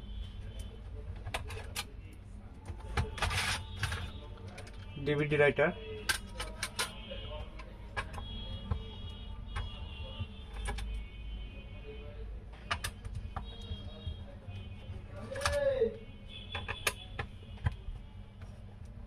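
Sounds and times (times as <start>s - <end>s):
plastic laptop case clicking: 16.5s - 18.0s.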